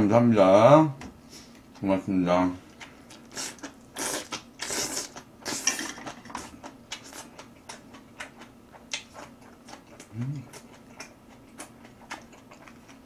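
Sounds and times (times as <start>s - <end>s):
person chewing: 2.7s - 13.0s
person slurping noodles: 3.3s - 7.2s.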